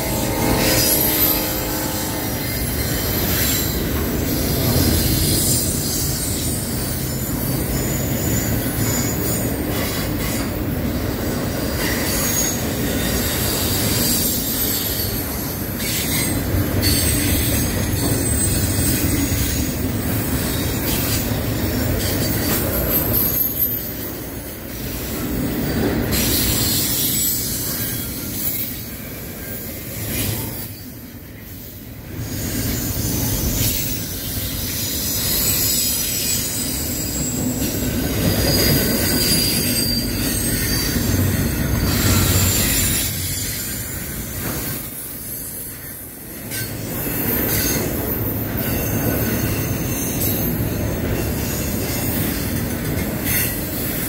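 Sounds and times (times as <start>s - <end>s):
high-pitched wheel squeal: 0.0s - 9.5s, 32.2s - 44.1s
train wheels rumbling on rails: 0.0s - 54.0s
wheels clickety-clack: 3.0s - 24.2s, 46.5s - 54.0s.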